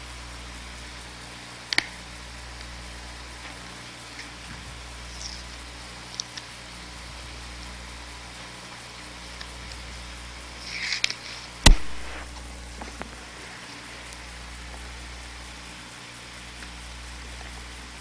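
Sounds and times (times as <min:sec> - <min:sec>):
mains hum and hiss: 0:00.0 - 0:18.0
crackling rustle: 0:01.0 - 0:18.0
sharp click: 0:01.7 - 0:02.0, 0:10.8 - 0:13.1.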